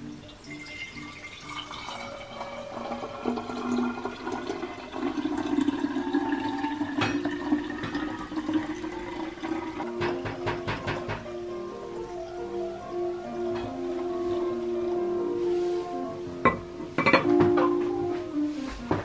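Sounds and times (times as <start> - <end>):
milk pouring into glass bottle: 0.2 - 9.9.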